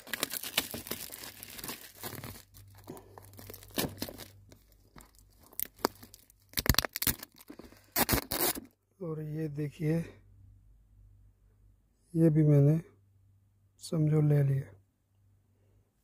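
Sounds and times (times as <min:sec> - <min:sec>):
plastic wrap crinkling and tearing: 0:00.0 - 0:08.7.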